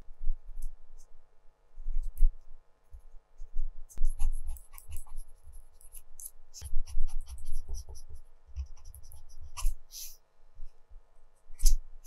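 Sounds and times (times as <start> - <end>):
pencil scratching on paper: 3.4 - 10.2.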